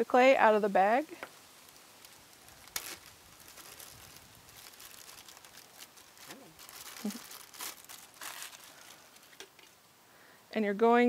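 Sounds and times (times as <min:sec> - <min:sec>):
hands rustling clay: 0:01.1 - 0:09.6
plastic zip bag crinkling: 0:01.3 - 0:09.8.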